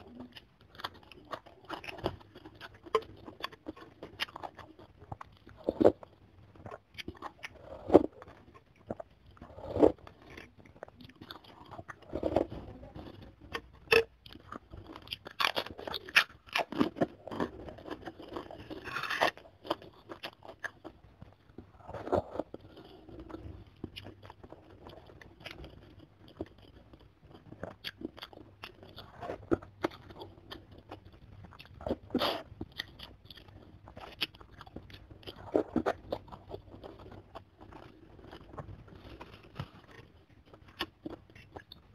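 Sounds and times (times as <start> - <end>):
wet chewing and crunching: 0.0 - 41.9.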